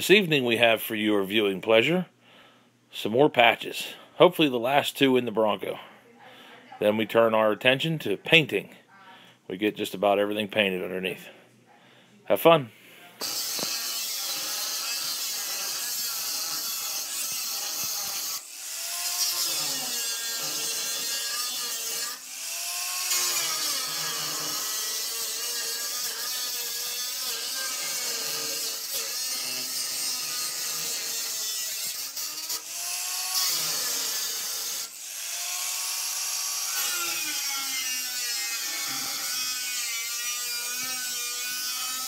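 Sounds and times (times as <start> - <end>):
angle grinder grinding steel: 13.2 - 42.0.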